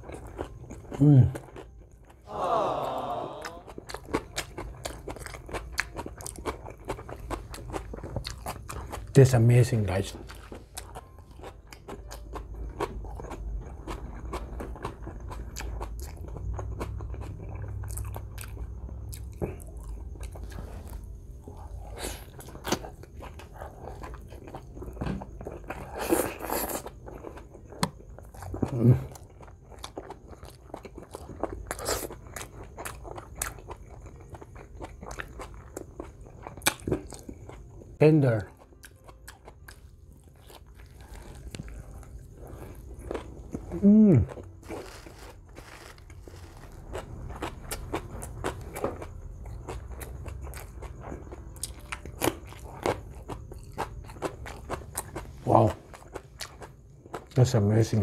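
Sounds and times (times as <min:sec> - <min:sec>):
wet chewing and lip-smacking: 0:03.4 - 0:09.2, 0:10.1 - 0:38.0.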